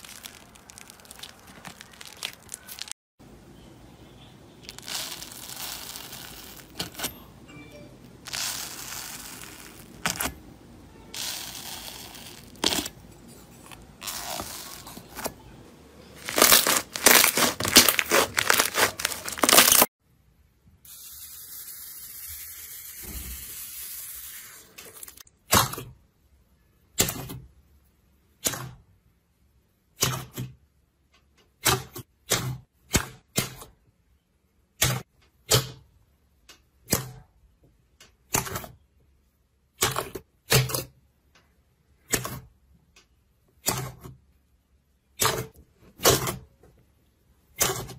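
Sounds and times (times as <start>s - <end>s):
slime crackling and tearing: 0.0s - 3.0s, 4.6s - 7.0s, 8.3s - 10.4s, 11.2s - 13.0s, 14.0s - 15.3s, 16.2s - 19.9s
slime air pockets popping: 16.2s - 19.9s.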